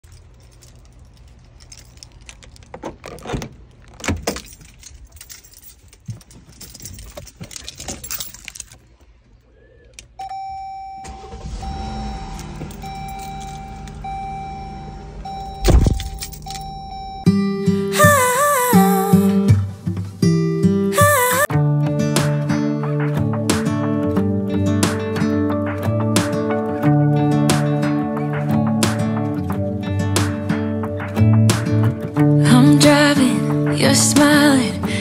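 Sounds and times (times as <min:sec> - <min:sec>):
keys jangling: 0:00.0 - 0:08.9, 0:12.3 - 0:14.2, 0:15.3 - 0:17.1
car warning chime: 0:10.2 - 0:18.5
car engine starting and idling: 0:11.0 - 0:18.7
loud thump: 0:15.6 - 0:16.3.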